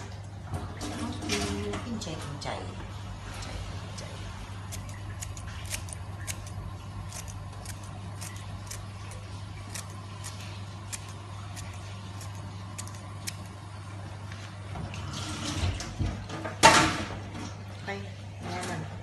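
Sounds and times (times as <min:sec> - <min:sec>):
steady low hum: 0:00.0 - 0:19.0
knife snipping herb stalks: 0:04.7 - 0:13.5.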